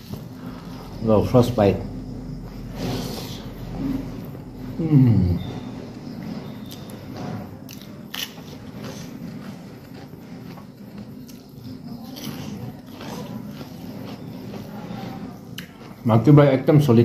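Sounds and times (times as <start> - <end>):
fingers scraping food on plate: 5.8 - 16.0
person biting and chewing: 7.7 - 14.7.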